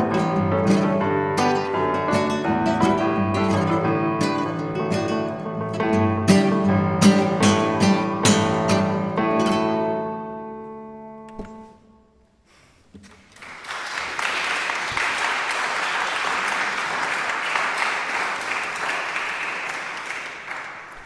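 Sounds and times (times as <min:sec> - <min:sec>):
classical guitar chord: 0:00.0 - 0:12.0
audience applauding: 0:13.0 - 0:21.0.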